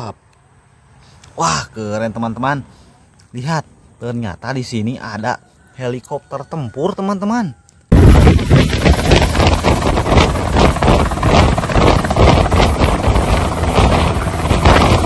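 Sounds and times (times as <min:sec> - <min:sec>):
helicopter rotor chop: 0:07.9 - 0:15.0.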